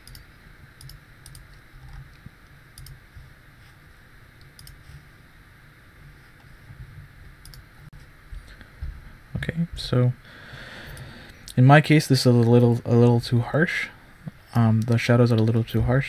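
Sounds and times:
computer mouse clicking: 0.0 - 2.0, 2.8 - 3.0, 4.4 - 4.8, 7.4 - 7.6
low steady hum: 0.0 - 16.0.

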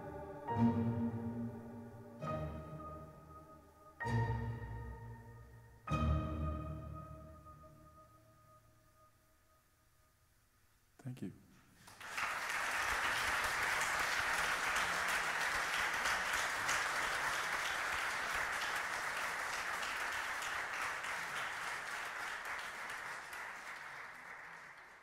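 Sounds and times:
hands clapping: 11.8 - 25.0.

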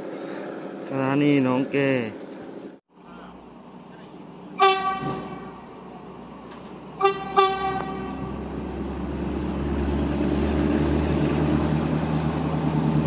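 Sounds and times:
locomotive engine rumble: 0.0 - 13.0
train horn blasts: 4.6 - 5.6, 7.0 - 8.4.

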